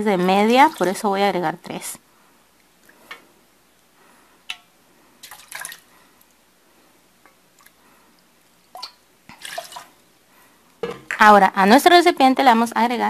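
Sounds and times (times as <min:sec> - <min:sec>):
water splashing into pot: 0:04.5 - 0:05.9, 0:08.7 - 0:10.0.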